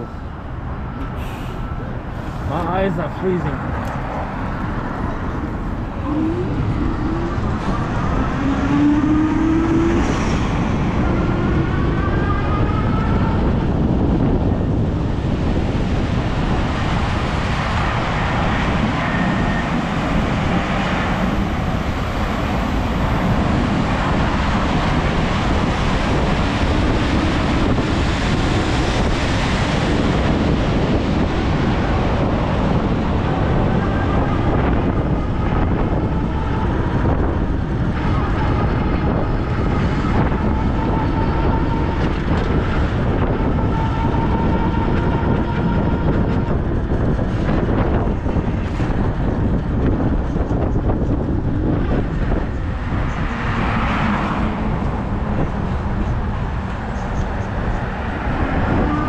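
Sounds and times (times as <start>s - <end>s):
car traffic: 0.0s - 59.0s
road and wind noise: 0.0s - 59.0s
rising whine: 3.8s - 47.0s.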